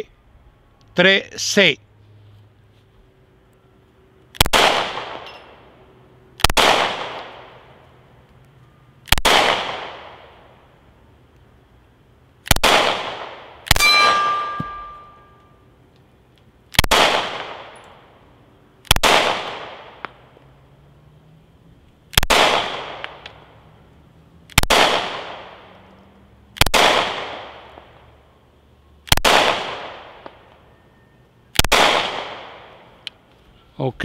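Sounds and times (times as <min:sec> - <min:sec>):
pistol shots with long echo: 0:04.4 - 0:05.7, 0:06.4 - 0:07.8, 0:09.0 - 0:10.5, 0:12.4 - 0:15.3, 0:16.7 - 0:17.8, 0:18.8 - 0:20.1, 0:22.1 - 0:23.2, 0:24.5 - 0:25.7, 0:26.6 - 0:28.0, 0:29.0 - 0:30.4, 0:31.6 - 0:32.9.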